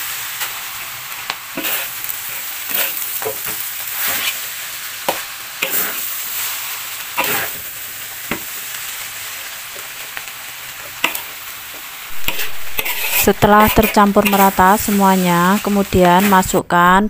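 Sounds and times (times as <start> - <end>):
noodles sizzling in a wok: 0.0 - 16.6
metal spatula scraping a wok: 1.5 - 6.5, 7.2 - 7.6, 12.1 - 16.4.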